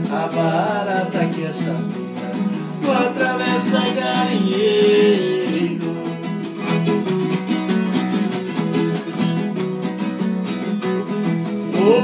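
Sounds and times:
man singing: 0.0 - 6.2, 11.5 - 12.0
acoustic guitars strumming: 0.0 - 12.0.

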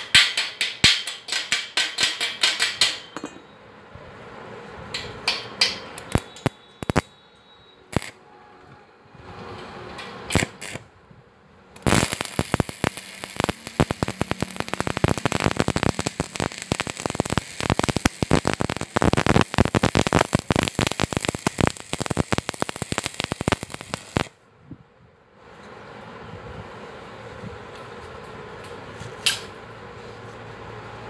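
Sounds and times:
welding arc crackling: 5.0 - 7.2, 7.9 - 8.2, 9.9 - 10.9, 11.7 - 24.4.

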